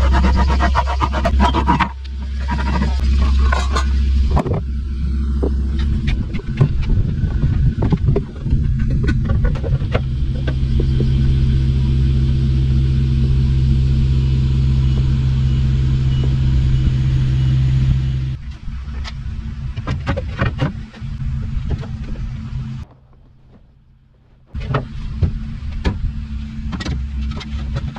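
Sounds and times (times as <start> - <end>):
vehicle engine rumbling: 0.0 - 27.9
knocks and clatters: 5.3 - 11.2.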